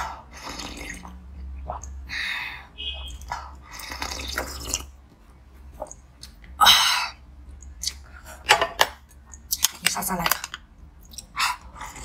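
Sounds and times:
slurping sips: 0:00.3 - 0:01.2, 0:03.7 - 0:04.9
wet mouth clicks: 0:05.8 - 0:06.6.

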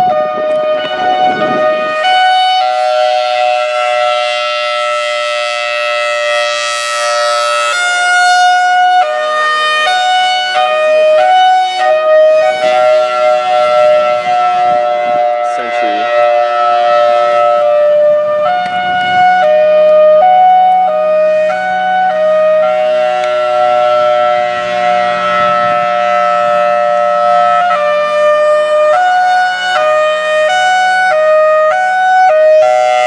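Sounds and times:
warning siren hi-lo signal: 0:00.0 - 0:33.0.

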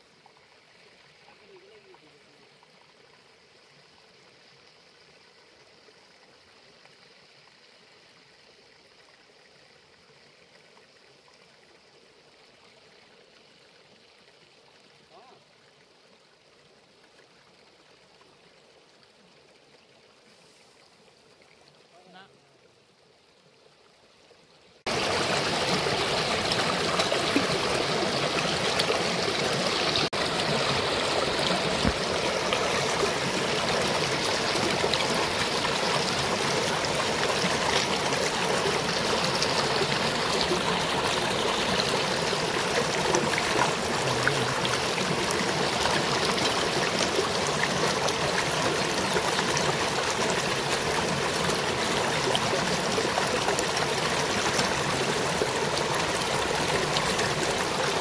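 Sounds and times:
river rushing over stones: 0:24.9 - 0:58.0.

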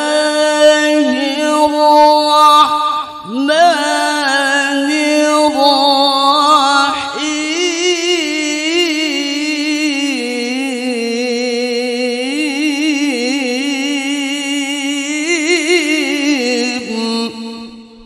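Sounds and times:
man reciting melodically: 0:00.0 - 0:18.0.

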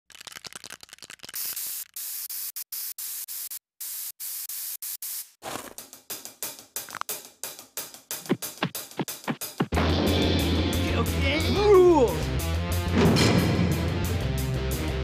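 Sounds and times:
static hiss bursts: 0:01.2 - 0:05.4
rhythmic music: 0:05.9 - 0:15.0.

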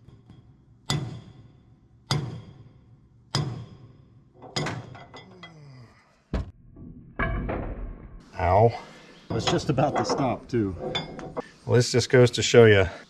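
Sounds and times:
sledgehammer striking steel: 0:00.0 - 0:05.0.

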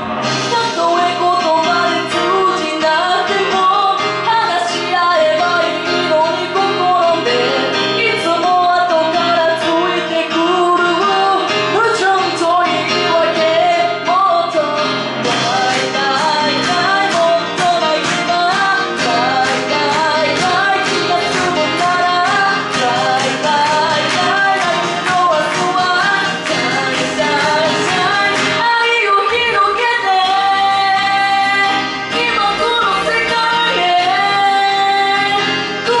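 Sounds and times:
backing track with beat: 0:00.0 - 0:28.7
woman singing into microphone: 0:00.2 - 0:36.0.

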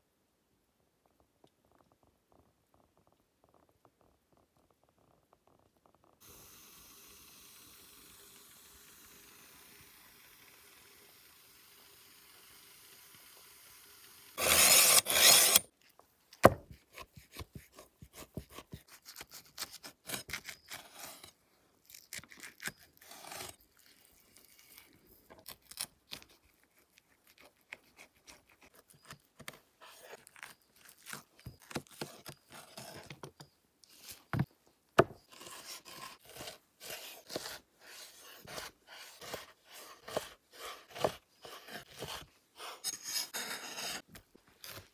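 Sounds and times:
knife slicing meat on wooden board: 0:35.3 - 0:44.0.

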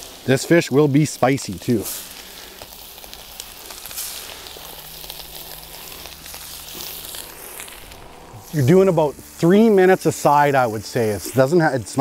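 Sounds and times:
fish sizzling in a pan: 0:00.0 - 0:12.0.

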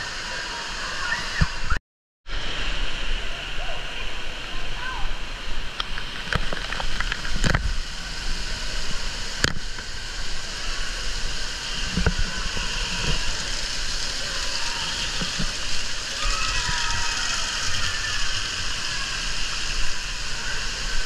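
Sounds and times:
water spraying and pattering: 0:05.7 - 0:21.0.

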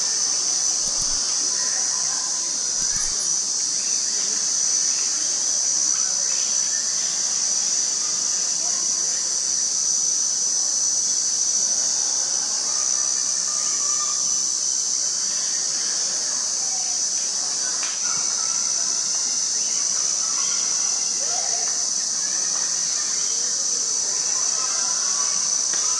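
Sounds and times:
insect chorus drone: 0:00.0 - 0:25.9.

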